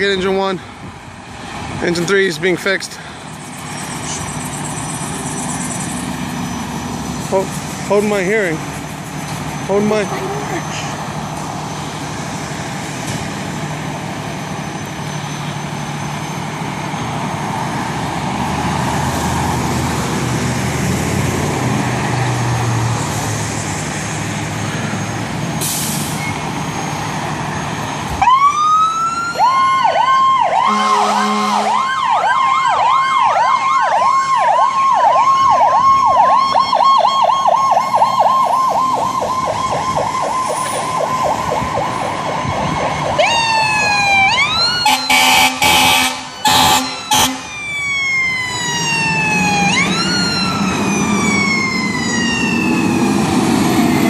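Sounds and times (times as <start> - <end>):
fire engines running: 0.0 - 54.0
electronic siren yelping: 28.2 - 53.4
low horn blast: 30.6 - 31.8, 44.8 - 47.5.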